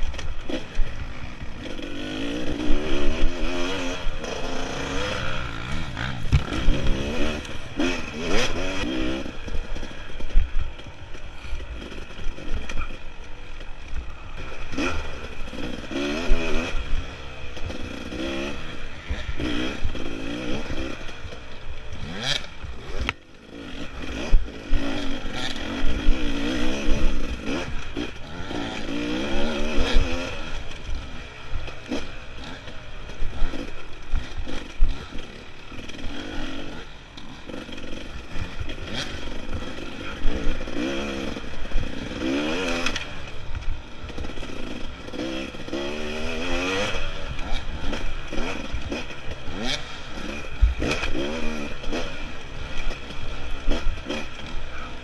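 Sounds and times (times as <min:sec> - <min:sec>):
dirt bike engine revving: 0:00.0 - 0:55.0
bike knocks and rattles: 0:05.7 - 0:07.1.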